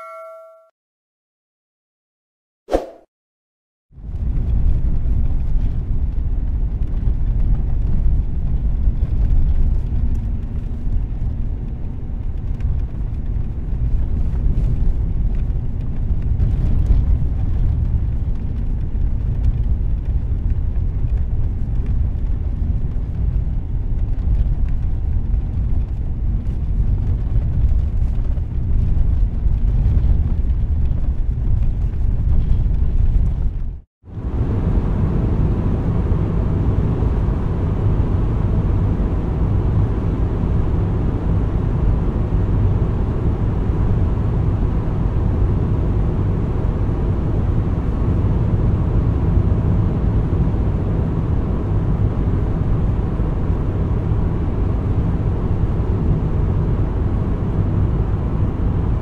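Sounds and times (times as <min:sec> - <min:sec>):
short blip: 0:00.0 - 0:00.7, 0:02.7 - 0:03.1
low rumble inside car cabin: 0:04.0 - 0:59.0.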